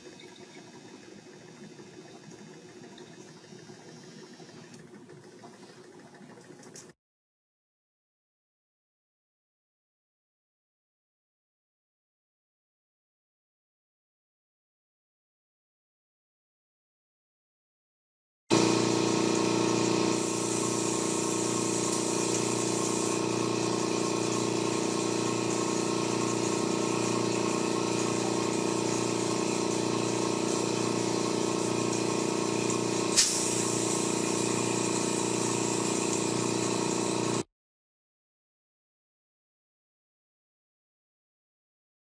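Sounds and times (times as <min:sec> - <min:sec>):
spin coater humming: 0:18.5 - 0:37.4.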